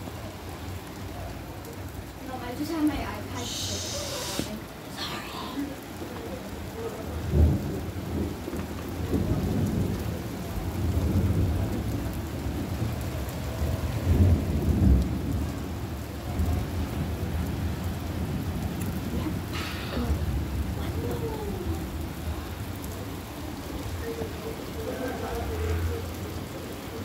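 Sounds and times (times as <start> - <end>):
steady rain: 0.0 - 27.0
thunder rumbling: 7.0 - 25.5.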